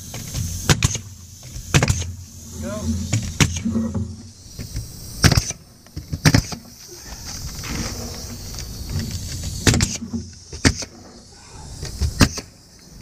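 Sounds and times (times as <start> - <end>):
pneumatic nailer shots: 0.0 - 2.3, 3.1 - 6.8, 8.9 - 11.2, 11.8 - 12.6.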